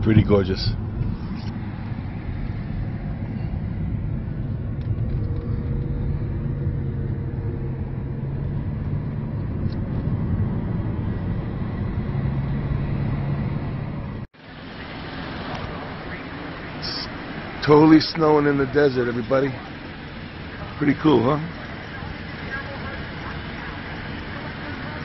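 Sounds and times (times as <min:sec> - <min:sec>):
car road and engine rumble: 0:00.0 - 0:25.0
hissy background: 0:14.4 - 0:25.0.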